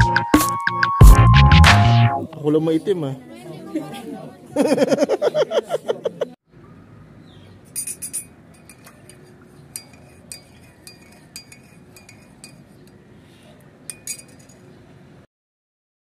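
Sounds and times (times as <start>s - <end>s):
teaspoon clinking in mug: 7.7s - 13.0s, 13.9s - 14.7s.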